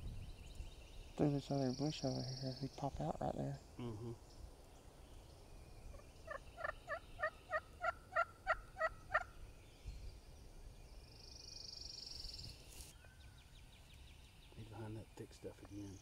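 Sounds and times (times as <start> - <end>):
wild turkey calling: 4.1 - 9.5.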